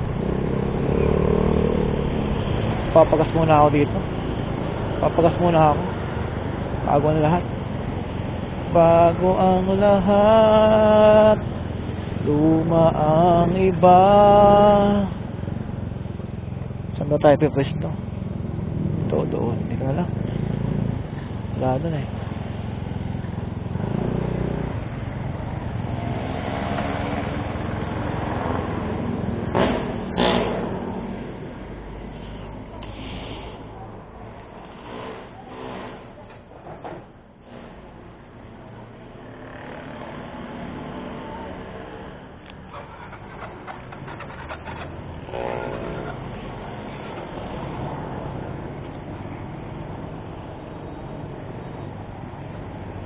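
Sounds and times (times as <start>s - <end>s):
traffic rumble: 0.0s - 53.0s
motorcycle engine running: 42.6s - 47.4s.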